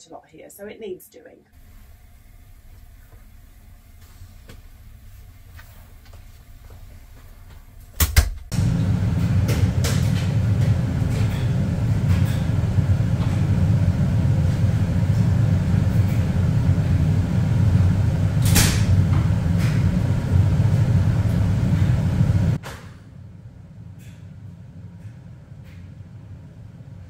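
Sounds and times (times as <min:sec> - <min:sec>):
low machinery rumble: 0:01.6 - 0:27.0
knocks and clatters in washing machine: 0:08.0 - 0:13.4.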